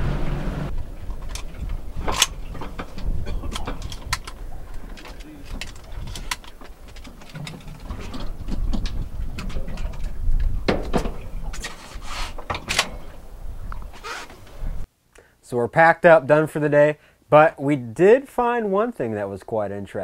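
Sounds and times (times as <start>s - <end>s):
wind and water rumble: 0.0s - 14.9s.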